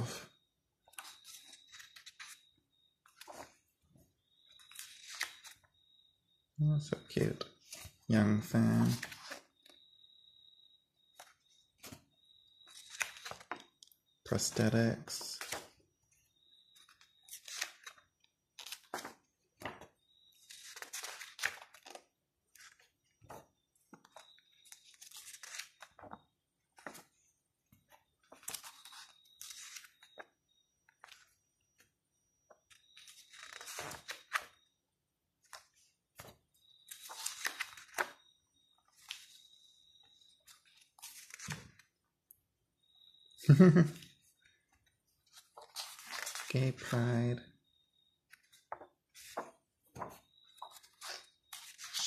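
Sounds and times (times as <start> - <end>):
book pages turning: 0.9 - 3.7, 4.3 - 5.7, 8.8 - 9.8, 11.2 - 13.9, 16.6 - 27.2, 27.8 - 30.3, 32.5 - 34.6, 35.4 - 38.2, 40.4 - 42.0, 45.2 - 46.6, 48.3 - 52.0.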